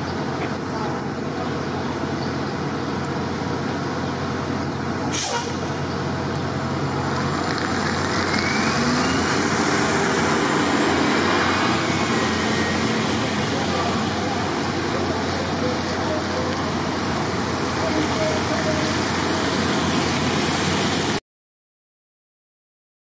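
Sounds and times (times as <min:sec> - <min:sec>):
large vehicle engine idling: 0:00.0 - 0:08.7, 0:09.8 - 0:21.1
street traffic: 0:00.0 - 0:21.2
sharp hiss: 0:05.1 - 0:05.8
vehicle accelerating: 0:05.4 - 0:21.2.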